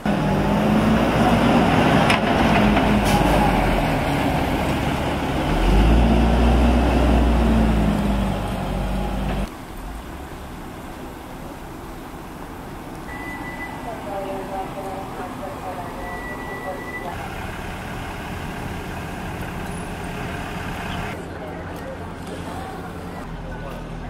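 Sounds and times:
heavy truck driving past: 0.0s - 10.7s.

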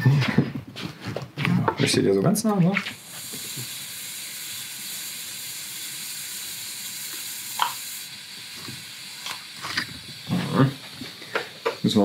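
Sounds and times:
welding arc hissing: 2.5s - 12.0s.

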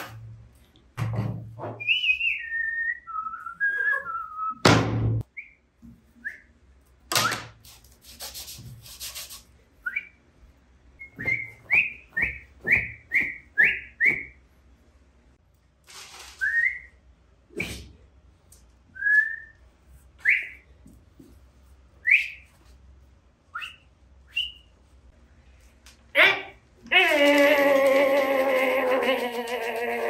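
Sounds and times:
person whistling: 1.8s - 4.6s.

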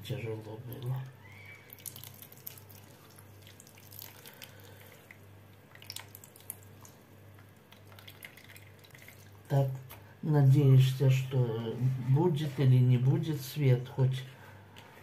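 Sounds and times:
juice dripping into a plastic bowl: 0.6s - 10.0s
small splashes: 1.6s - 7.0s.

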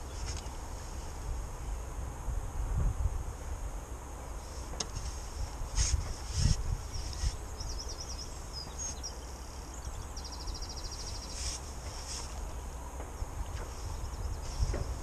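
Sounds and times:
small birds chirping: 0.0s - 0.9s, 4.5s - 15.0s
wind rumbling on microphone: 0.0s - 15.0s.

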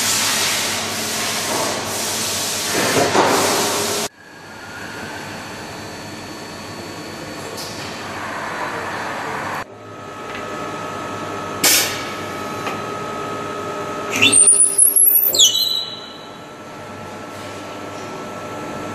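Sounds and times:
machine whine: 13.8s - 16.6s
cutter head screeching on wood: 14.1s - 16.2s.

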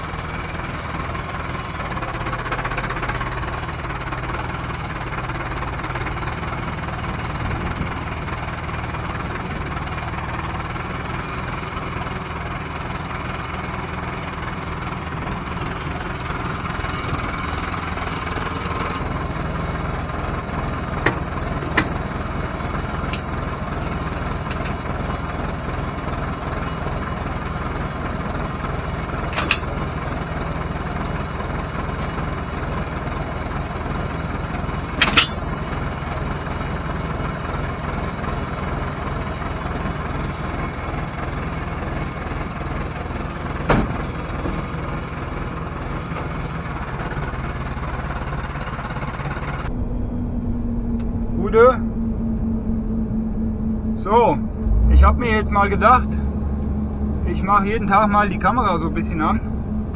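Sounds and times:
tractor diesel engine idling: 0.0s - 59.9s
sharp metal clanks: 35.0s - 35.4s.

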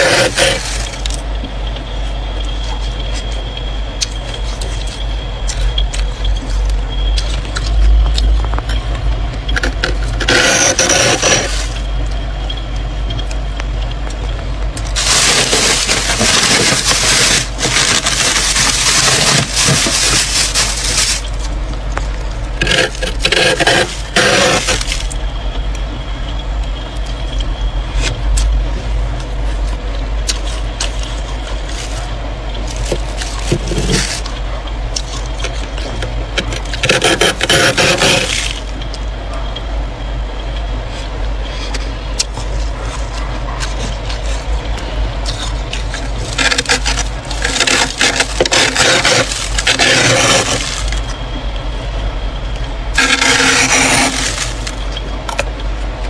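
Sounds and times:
metal spoon scraping frost: 0.0s - 1.2s, 9.6s - 11.9s, 14.9s - 21.5s, 22.6s - 25.2s, 45.2s - 51.0s, 53.0s - 54.8s.

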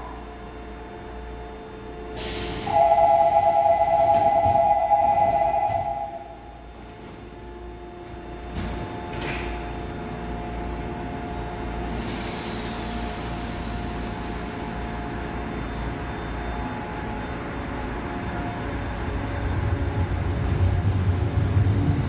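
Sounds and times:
electric train humming: 0.0s - 22.0s
air hiss: 2.2s - 3.2s.

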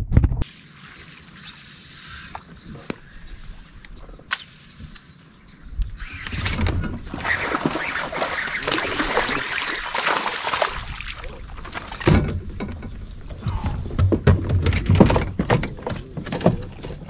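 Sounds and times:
fish thrashing and splashing water: 7.1s - 12.1s.

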